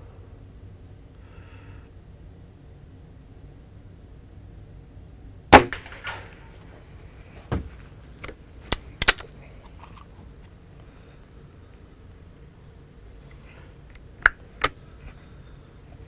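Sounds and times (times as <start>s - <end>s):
air rifle firing: 5.5s - 6.6s
metallic clicks of rifle cocking: 8.2s - 9.3s.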